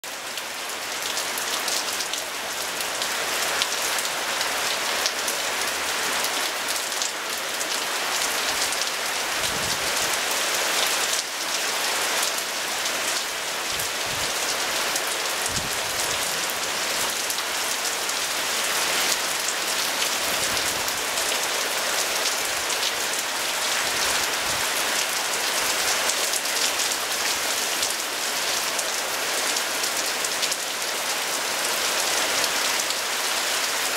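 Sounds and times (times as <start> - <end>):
steady rain pouring: 0.0 - 33.9.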